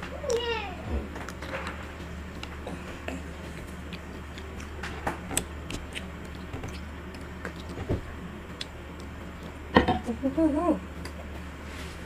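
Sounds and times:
steady low hum: 0.0 - 12.0
child chewing ice cream bar: 1.1 - 9.7.

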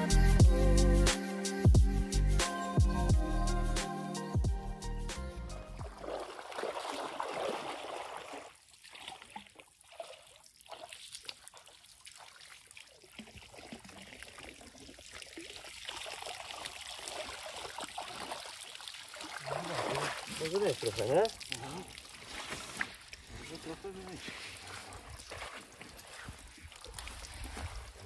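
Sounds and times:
water draining from sling: 5.8 - 28.0
water splashing around legs: 5.8 - 28.0.

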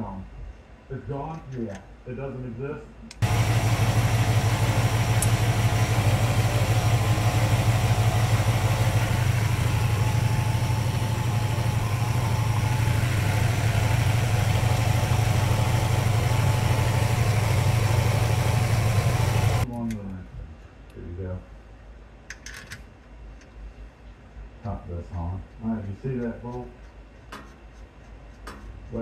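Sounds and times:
car engine idling: 3.2 - 19.6.

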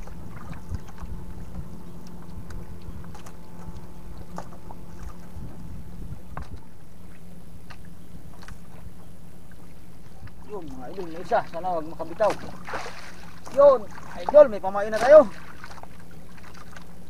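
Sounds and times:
wind on microphone: 0.0 - 7.2
faint low hum: 0.0 - 17.0
water lapping against boat hull: 0.0 - 17.0.

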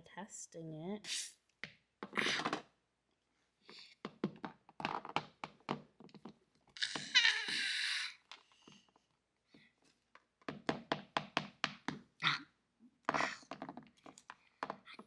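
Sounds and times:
toy figures knocking and clicking: 1.6 - 2.7, 4.0 - 8.9, 10.2 - 12.1, 13.0 - 15.0.

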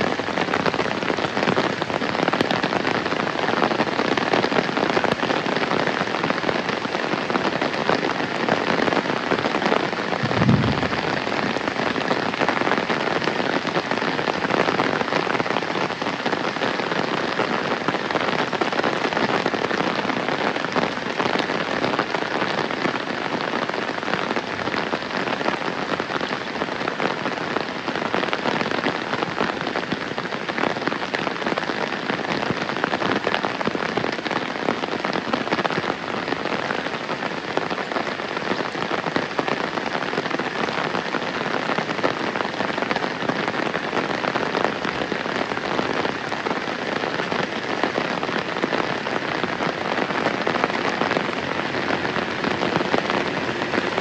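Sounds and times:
heavy rain pouring: 0.0 - 54.0
low thump: 10.2 - 11.6.

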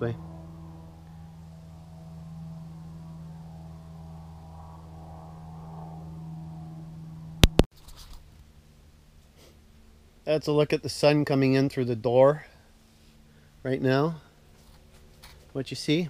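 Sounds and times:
small plane engine droning: 0.0 - 7.7, 12.4 - 16.0.

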